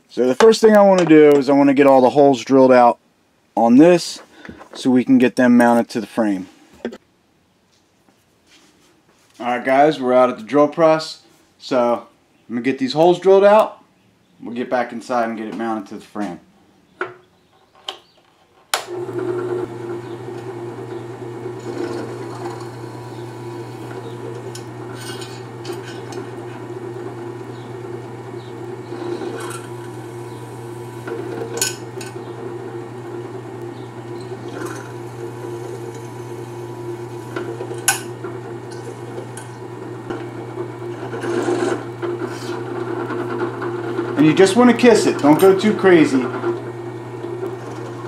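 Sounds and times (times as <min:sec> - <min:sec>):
drill press humming: 0:18.8 - 0:48.0.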